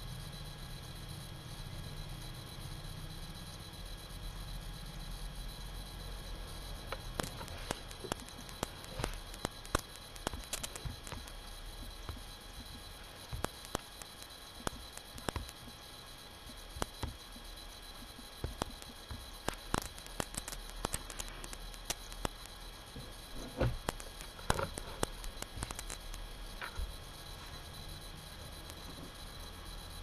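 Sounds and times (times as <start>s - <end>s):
faint clicks and taps: 6.8s - 15.8s, 16.4s - 28.0s.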